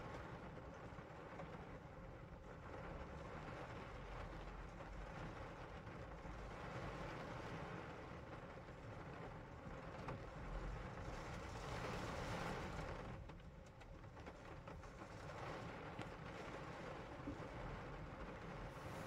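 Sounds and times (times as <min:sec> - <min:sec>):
rain hiss heard inside a car: 0:00.0 - 0:19.0
low car rumble: 0:09.0 - 0:19.0.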